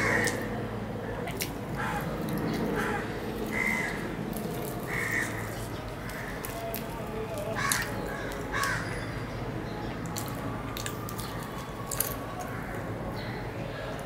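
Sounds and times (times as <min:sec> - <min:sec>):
crows cawing: 0:00.0 - 0:06.6, 0:07.6 - 0:09.0
fried bread being torn: 0:01.2 - 0:08.8, 0:10.0 - 0:12.9.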